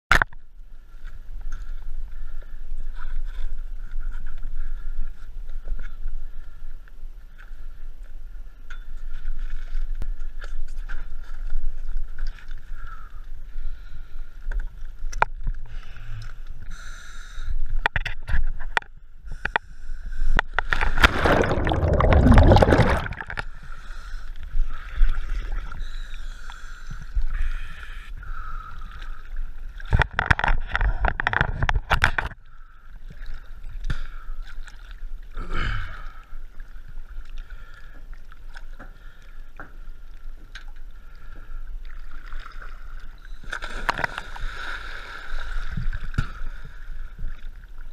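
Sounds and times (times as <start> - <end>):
water sloshing and gurgling: 0.1 - 16.7, 17.6 - 47.9
water splashing and bubbling: 20.4 - 23.8, 24.4 - 25.9, 28.4 - 47.9.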